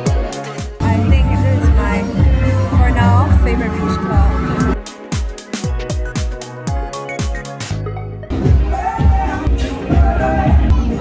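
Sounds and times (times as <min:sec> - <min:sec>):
electronic beat with kick drum: 0:00.0 - 0:01.2, 0:04.6 - 0:07.8.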